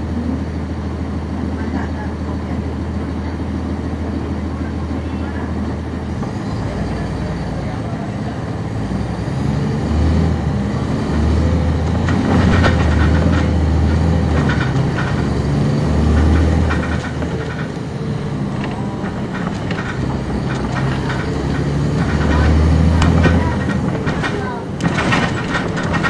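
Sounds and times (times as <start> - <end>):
bus diesel engine: 0.0 - 26.0
cabin rattles and clicks: 11.0 - 26.0.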